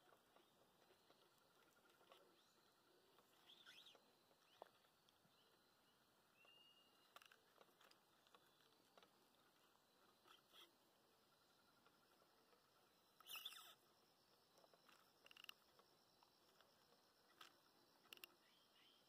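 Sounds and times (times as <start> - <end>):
faint bird chirps: 0.0 - 19.0
small ticks: 6.4 - 10.8, 11.6 - 18.7.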